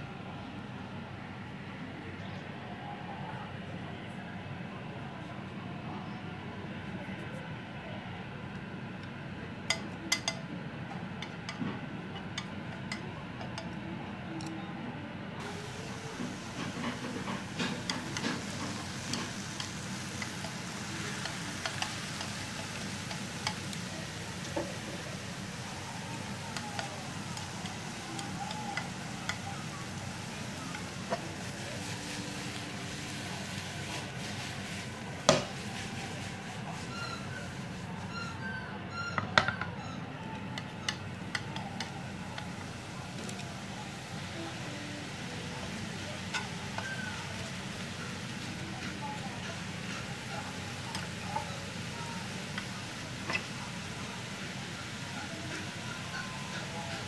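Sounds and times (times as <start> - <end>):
chopsticks tapping frying pan: 9.7 - 10.4, 11.2 - 13.8, 15.4 - 32.6, 34.6 - 35.6, 40.6 - 57.0.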